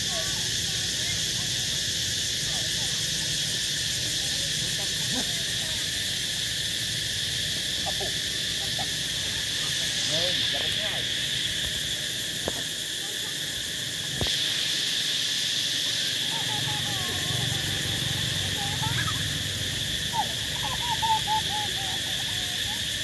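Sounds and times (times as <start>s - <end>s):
high-pitched insect chorus: 0.0s - 23.0s
faint rising and falling calls: 15.8s - 23.0s.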